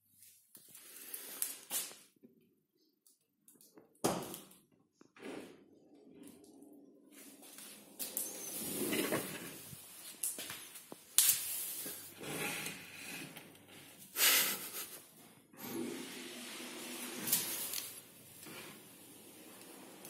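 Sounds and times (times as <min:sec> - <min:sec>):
dishwasher door rubbing and hissing: 0:07.3 - 0:10.0, 0:15.5 - 0:20.0.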